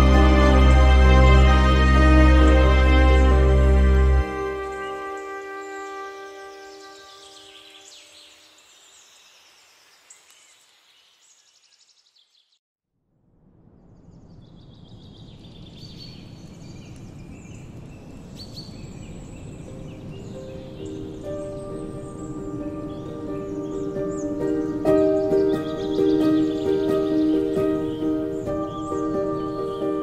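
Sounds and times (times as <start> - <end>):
low rumbling: 0.0 - 5.1
outdoor background noise: 13.0 - 30.0
small birds chirping: 14.0 - 30.0.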